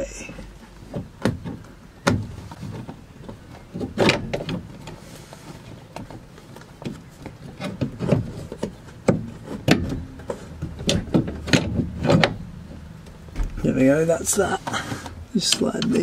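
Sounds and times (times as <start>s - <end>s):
metal part knocking and clunking: 7.6s - 13.8s.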